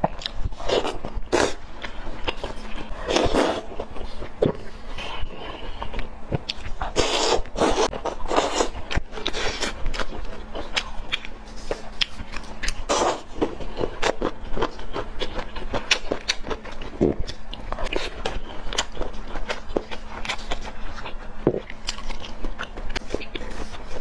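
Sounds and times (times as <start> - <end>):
chewing and lip smacks: 8.9 - 12.9, 14.0 - 24.0.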